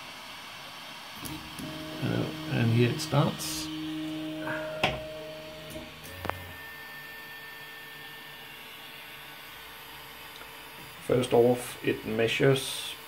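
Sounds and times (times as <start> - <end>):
stepper motors whining: 1.2 - 9.7.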